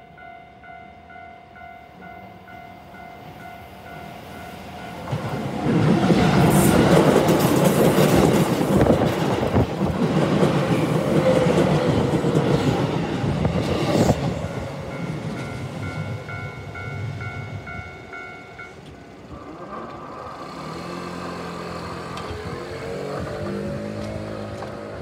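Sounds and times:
level crossing warning bell: 0:00.0 - 0:05.4, 0:14.5 - 0:20.4
train wheels rumbling on rails: 0:03.2 - 0:25.0
wheels rattling over crossing: 0:04.9 - 0:25.0.

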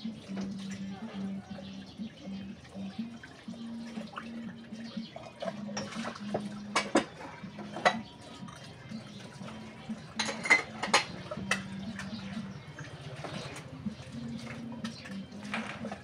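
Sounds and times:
dishes and cups clinking: 0:05.6 - 0:08.6, 0:09.9 - 0:12.3.

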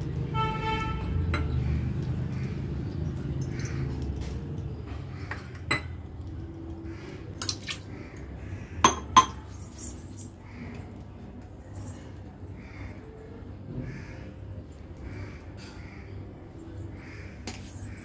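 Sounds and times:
metal kitchenware clinking: 0:08.8 - 0:10.3.

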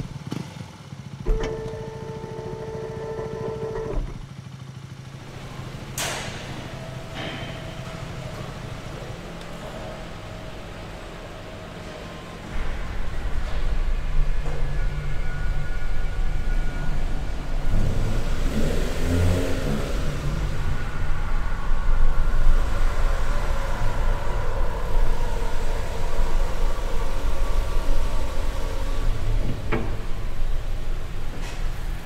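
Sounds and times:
vehicle engine rumbling: 0:00.0 - 0:32.0.

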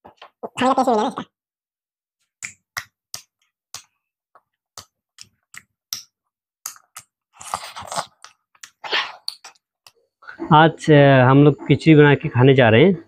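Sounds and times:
lip smacks and chewing: 0:03.2 - 0:10.0.

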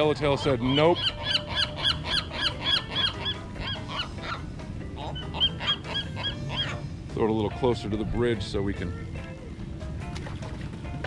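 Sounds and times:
birds calling rapidly: 0:00.0 - 0:07.0.

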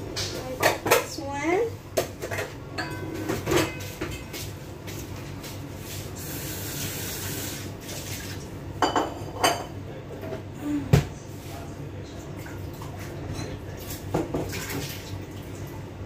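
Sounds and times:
dishes clinking in sink: 0:02.0 - 0:04.4, 0:08.8 - 0:10.4, 0:12.4 - 0:15.1
tap water running: 0:06.1 - 0:08.6, 0:12.4 - 0:15.8.

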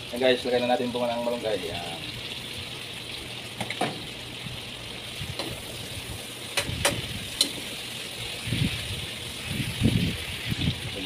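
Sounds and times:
vegetables sizzling in a frying pan: 0:00.0 - 0:11.0.

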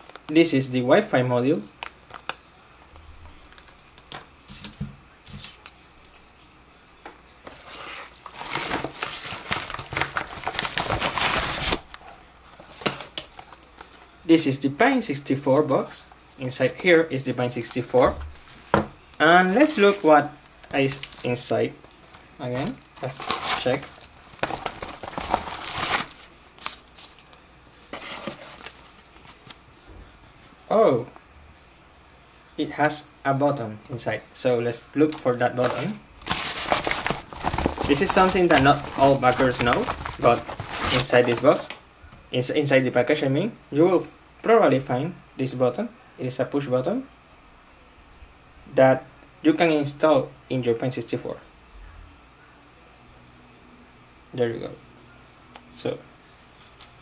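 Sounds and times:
packaging rustling and crinkling: 0:01.8 - 0:02.4, 0:07.4 - 0:14.1, 0:17.6 - 0:30.6, 0:35.0 - 0:41.8
padded envelope crinkling: 0:07.4 - 0:14.1, 0:16.5 - 0:29.6, 0:35.0 - 0:41.8.

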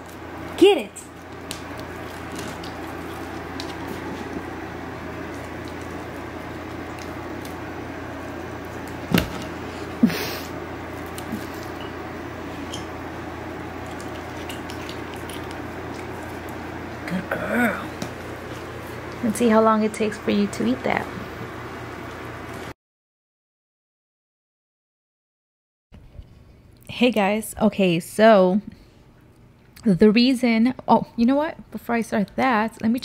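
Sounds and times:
dog licking wet meat: 0:01.1 - 0:07.6, 0:13.7 - 0:16.7.

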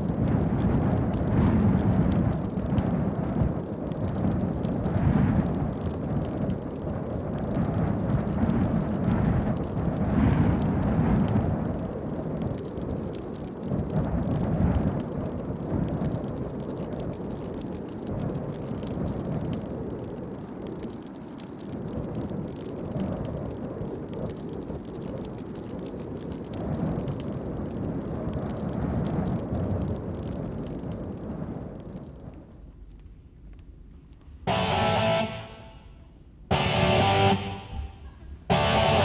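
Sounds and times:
deep pitchless rumble: 0:00.0 - 0:13.0, 0:30.3 - 0:39.0.

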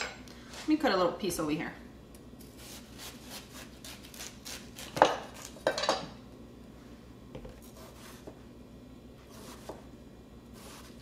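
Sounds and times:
knife cutting watermelon: 0:07.6 - 0:08.4, 0:09.2 - 0:09.9, 0:10.5 - 0:11.0.

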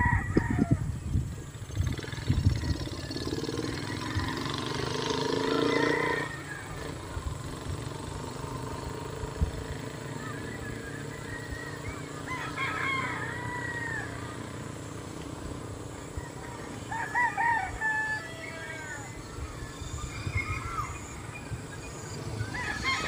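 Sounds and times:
rooster crowing: 0:00.0 - 0:00.9, 0:03.6 - 0:04.9, 0:05.5 - 0:07.0, 0:10.6 - 0:14.6, 0:16.0 - 0:19.3, 0:22.4 - 0:23.0
birds chirping: 0:00.0 - 0:23.0.

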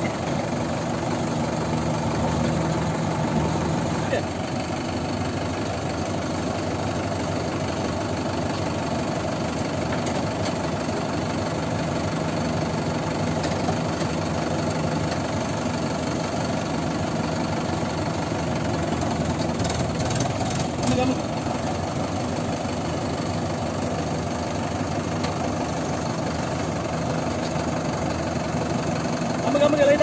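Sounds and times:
diesel engines running: 0:00.0 - 0:30.0.

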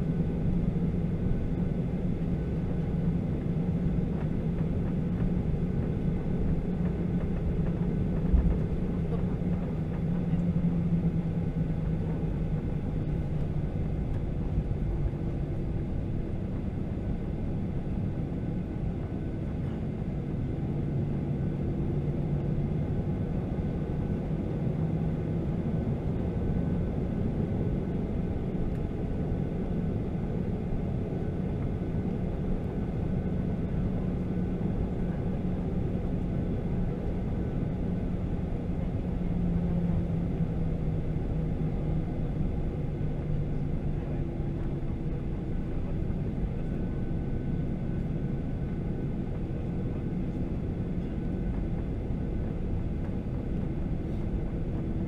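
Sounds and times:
airplane engines droning in cabin: 0:00.0 - 0:55.0.

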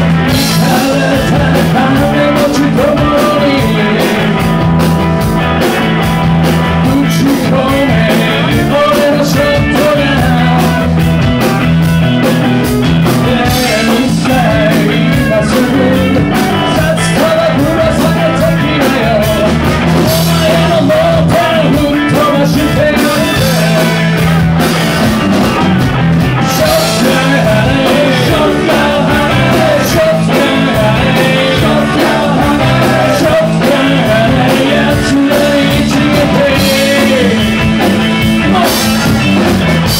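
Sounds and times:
lead vocal singing: 0:00.0 - 0:11.4, 0:12.6 - 0:39.9
rock band playing: 0:00.0 - 0:39.9.

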